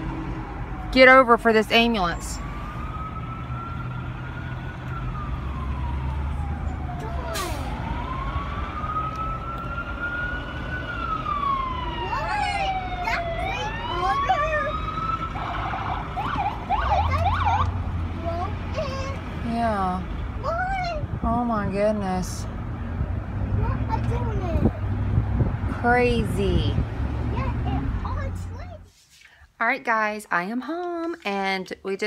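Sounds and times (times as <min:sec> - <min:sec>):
emergency sirens wailing: 0:00.0 - 0:24.4
car engine and road hum: 0:00.0 - 0:28.9
siren fast yelp: 0:01.8 - 0:17.7.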